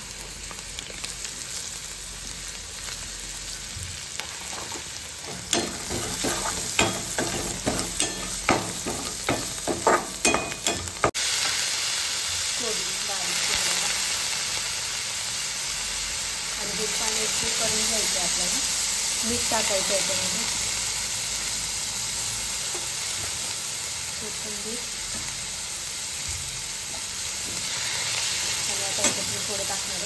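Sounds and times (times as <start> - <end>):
food sizzling in hot oil: 0.0 - 30.0
steel spoon scraping a pan: 4.3 - 11.1.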